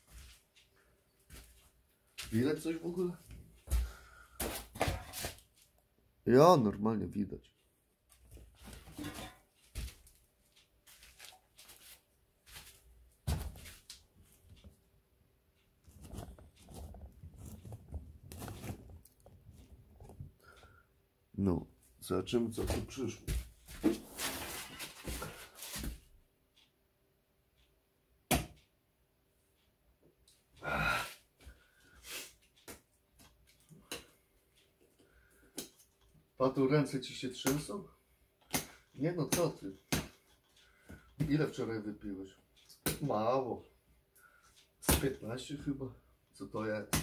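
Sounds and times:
handling rustles and knocks: 3.2 - 5.8, 8.1 - 14.9, 15.8 - 20.4, 22.5 - 26.1.

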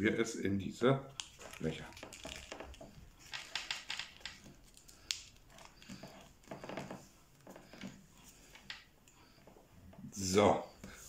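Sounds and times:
paper rustling: 1.2 - 8.7.

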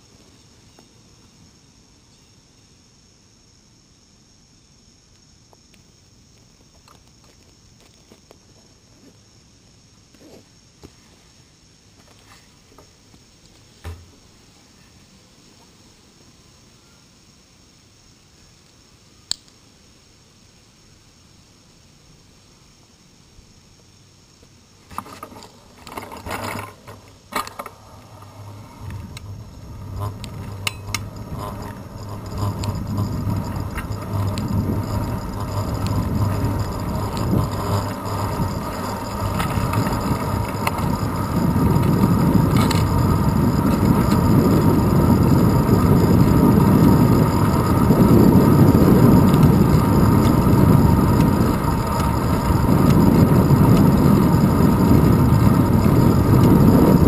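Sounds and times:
bicycle clicks and knocks: 24.9 - 27.8, 28.8 - 57.0
tyre rumble: 25.0 - 57.0
wind buffeting microphone: 28.4 - 57.0
freewheel ratchet clicking: 28.8 - 57.0.

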